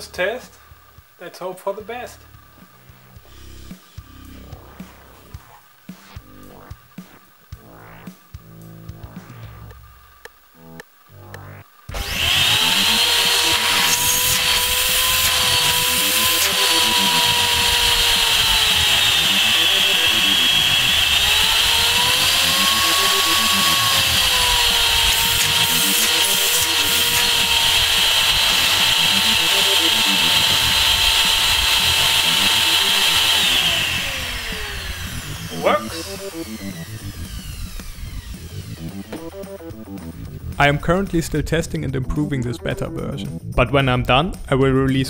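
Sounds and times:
vacuum cleaner motor whine: 11.4s - 39.4s.

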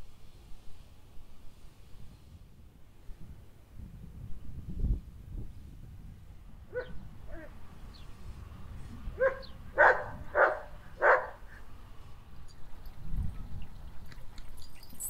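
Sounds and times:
dog barking: 6.7s - 7.5s, 9.2s - 11.5s.

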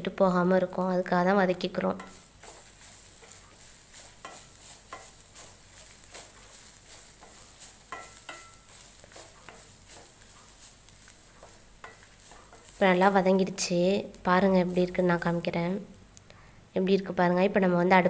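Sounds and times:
faint sizzle of frying: 0.0s - 18.0s
spatula scraping metal pan: 1.9s - 12.9s.

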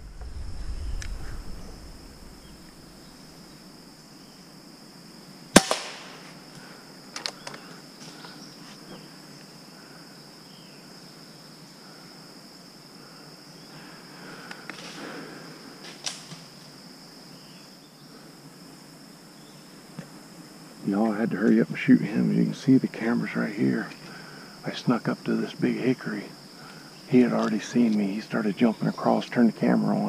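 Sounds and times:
air rifle shot: 5.6s - 6.2s.

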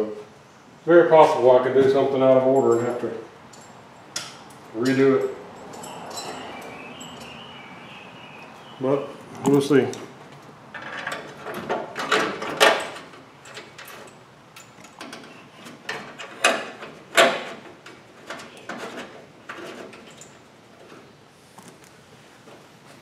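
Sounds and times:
car parts scraping and knocking: 9.4s - 21.8s.

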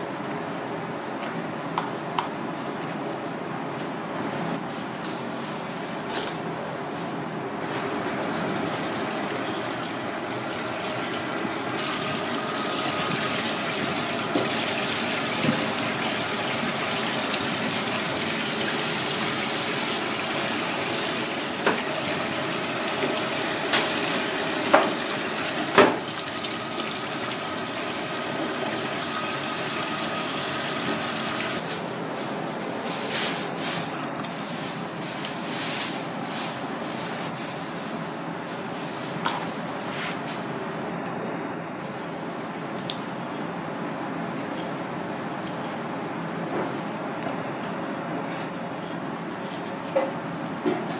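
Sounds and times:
running water: 7.6s - 31.6s.

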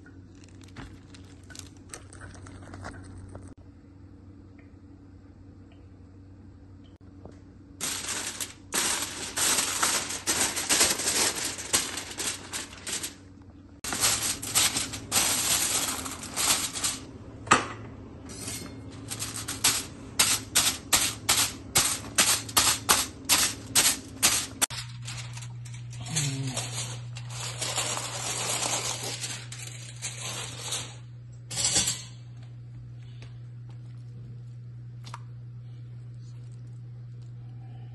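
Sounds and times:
aluminium foil crinkling: 0.3s - 3.4s, 7.8s - 17.1s, 18.3s - 31.1s
foil crimping: 7.8s - 17.1s, 18.4s - 30.8s.

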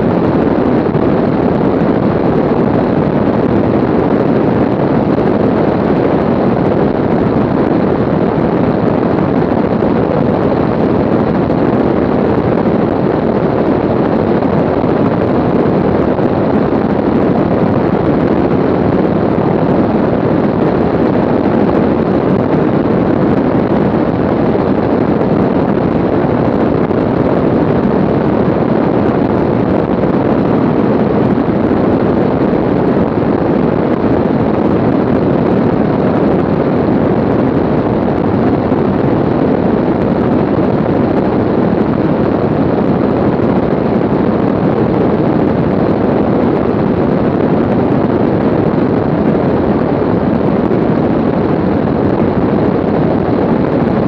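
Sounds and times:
aircraft engine and wind rush: 0.0s - 54.0s.

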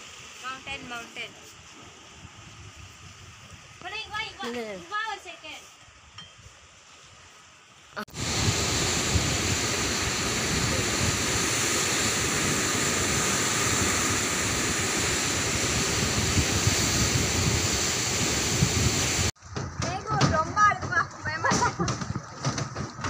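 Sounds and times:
white water rushing through channel: 8.1s - 23.0s.

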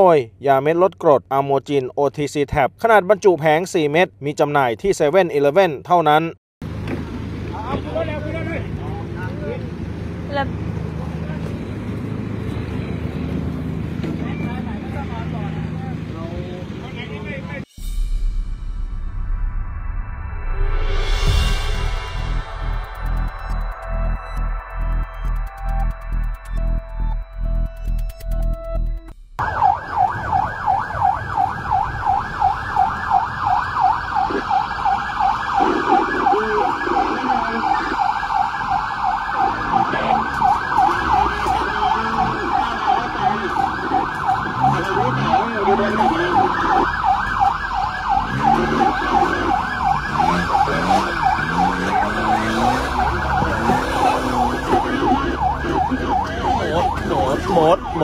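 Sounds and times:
electronic music: 19.0s - 29.3s, 39.2s - 47.2s
siren yelping: 29.4s - 58.0s.

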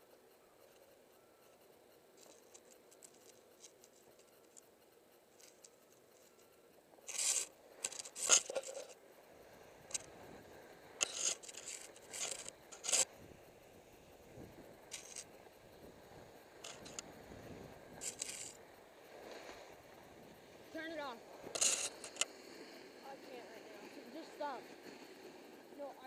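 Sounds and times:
ski edges scraping snow: 7.1s - 9.0s, 11.0s - 13.1s, 14.9s - 15.2s, 16.6s - 17.0s, 18.0s - 18.6s, 21.5s - 22.8s
skis sliding over snow: 7.1s - 9.0s, 11.0s - 13.1s, 14.9s - 15.2s, 16.6s - 17.0s, 18.0s - 19.8s, 20.4s - 26.0s.

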